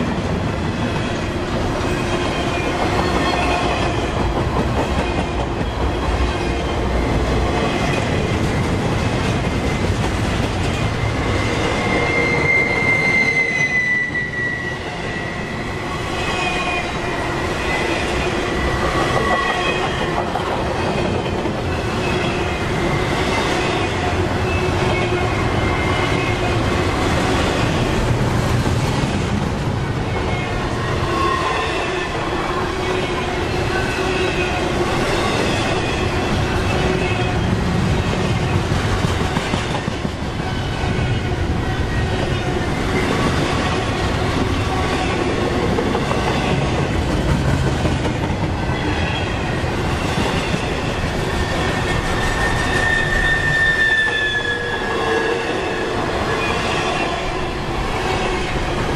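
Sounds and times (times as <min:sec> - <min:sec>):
freight train wheels rumbling: 0:00.0 - 0:58.9
high wheel squeal: 0:10.8 - 0:20.0, 0:51.3 - 0:57.4.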